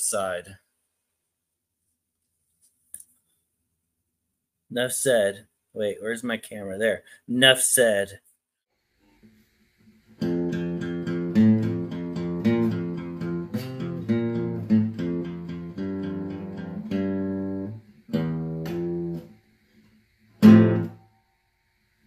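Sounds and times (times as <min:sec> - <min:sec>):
strummed guitar chord: 0:10.2 - 0:19.2
guitar picked notes: 0:10.2 - 0:19.3, 0:20.4 - 0:21.1.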